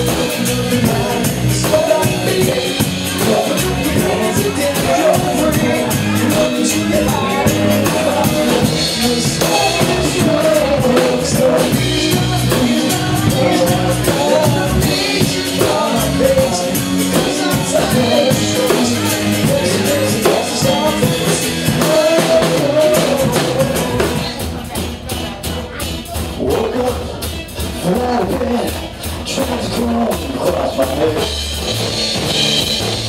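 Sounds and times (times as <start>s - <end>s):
man singing: 0.0s - 24.9s, 26.3s - 31.7s
drum kit: 0.0s - 33.0s
electric bass: 0.0s - 33.0s.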